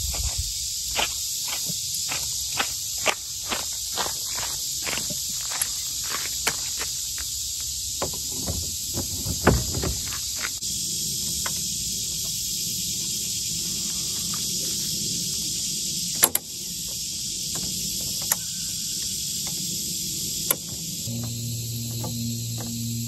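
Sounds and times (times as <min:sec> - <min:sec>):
insects droning: 0:00.0 - 0:23.0
outboard motor knocks: 0:08.0 - 0:10.2, 0:20.5 - 0:23.0.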